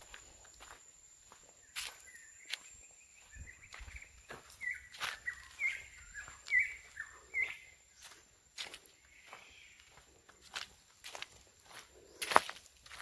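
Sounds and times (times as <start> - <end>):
footsteps on dirt and leaves: 0.0 - 13.0
bird chirping: 1.5 - 10.6.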